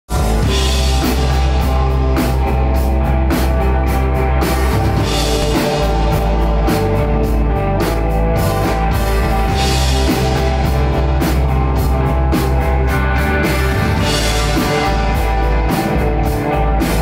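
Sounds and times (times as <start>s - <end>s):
heavy bass: 0.1s - 17.0s
rock band playing: 0.1s - 17.0s.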